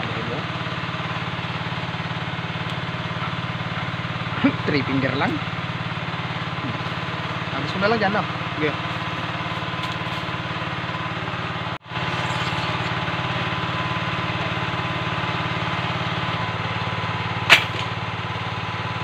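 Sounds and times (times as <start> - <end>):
engine-like drone: 0.0 - 19.0
speargun firing snap: 17.5 - 17.9.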